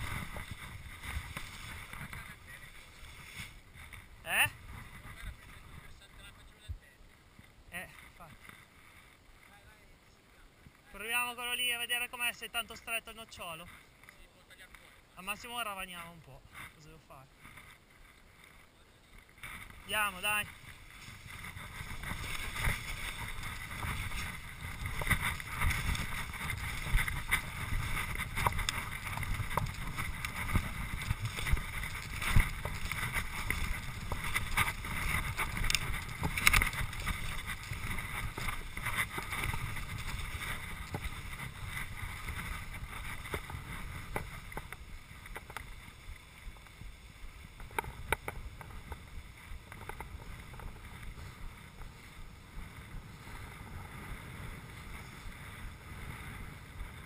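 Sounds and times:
skis hissing over snow: 0.0 - 5.8, 18.4 - 57.0
wind buffeting microphone: 0.0 - 7.6, 19.4 - 57.0
ski and pole clicks: 20.5 - 45.8.

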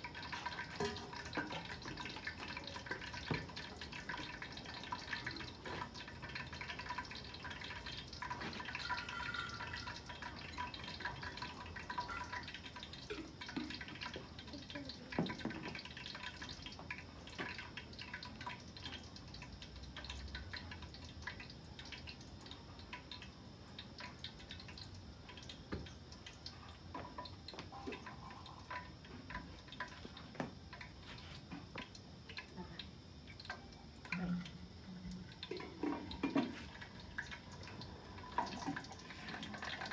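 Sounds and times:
food sizzling in a pot: 0.0 - 22.7
crackles and pops of frying: 0.0 - 39.9.

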